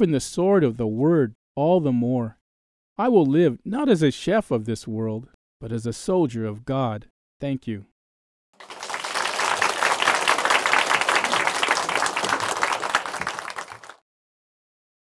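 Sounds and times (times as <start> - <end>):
small group applauding: 8.6 - 14.0.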